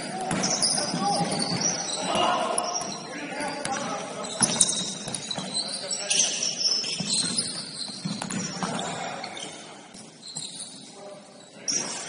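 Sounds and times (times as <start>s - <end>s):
sneaker squeaks on court: 0.3s - 10.9s
basketball bouncing: 7.0s - 8.8s.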